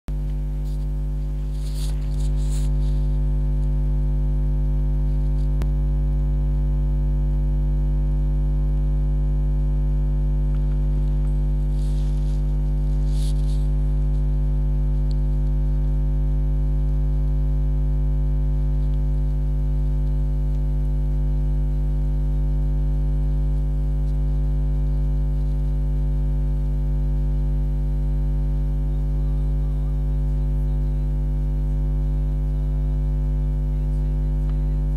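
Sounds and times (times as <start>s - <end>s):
electrical mains hum: 0.1s - 34.9s
soft rustles: 0.3s - 3.6s, 10.6s - 14.3s.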